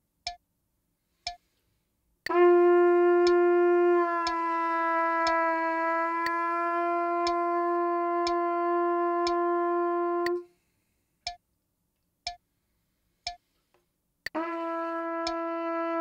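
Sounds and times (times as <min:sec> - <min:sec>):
metronome clicking: 0:00.2 - 0:00.4, 0:01.2 - 0:01.5, 0:03.1 - 0:03.5, 0:04.2 - 0:04.4, 0:05.2 - 0:05.4, 0:06.2 - 0:06.4, 0:07.1 - 0:09.5, 0:10.2 - 0:10.4, 0:11.2 - 0:11.4, 0:12.2 - 0:12.4, 0:13.2 - 0:13.5, 0:15.1 - 0:15.5
trumpet long steady tone: 0:02.2 - 0:10.6, 0:14.3 - 0:16.0.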